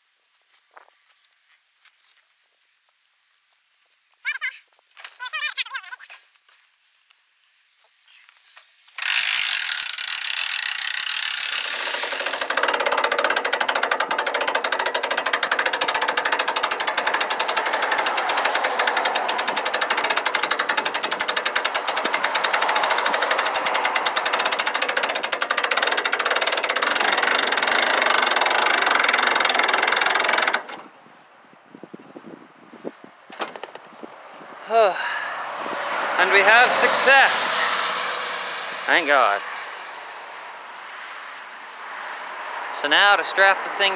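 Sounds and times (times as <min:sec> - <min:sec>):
winch ratchet clicking: 0:09.0 - 0:30.9.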